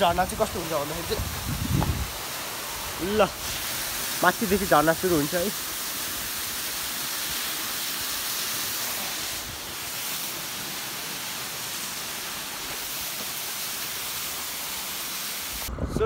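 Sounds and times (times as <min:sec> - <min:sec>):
waterfall rushing: 0:00.0 - 0:15.7.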